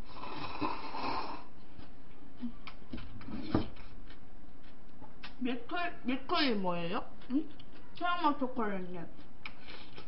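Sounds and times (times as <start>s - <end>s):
slurping broth: 0.0s - 1.5s.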